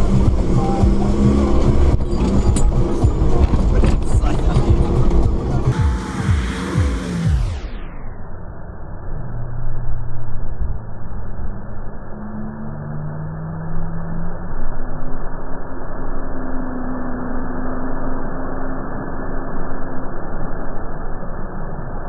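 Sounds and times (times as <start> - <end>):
engine running hard: 0.0 - 8.0.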